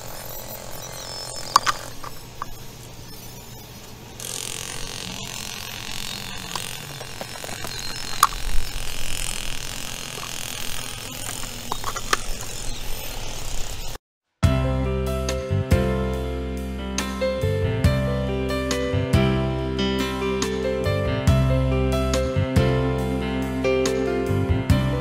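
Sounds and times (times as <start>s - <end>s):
soil and gravel scraping: 6.0s - 12.8s.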